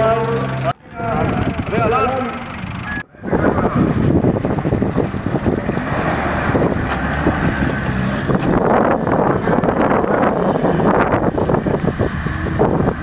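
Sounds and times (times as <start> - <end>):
truck engine running: 0.0 - 13.0
wind buffeting microphone: 0.8 - 13.0.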